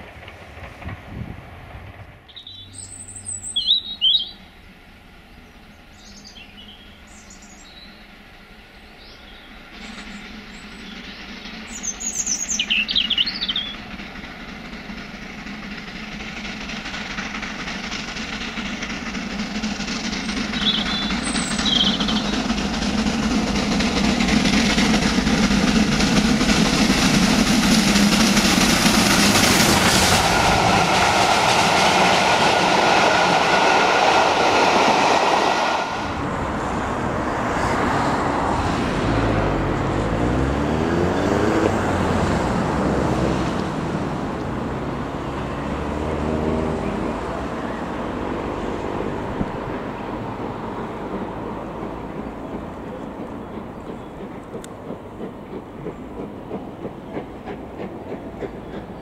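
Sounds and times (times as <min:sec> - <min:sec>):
steam locomotive running: 0:00.0 - 0:59.0
birds chirping: 0:02.3 - 0:04.5, 0:05.2 - 0:08.1, 0:08.7 - 0:14.1, 0:20.1 - 0:23.6, 0:52.0 - 0:54.9.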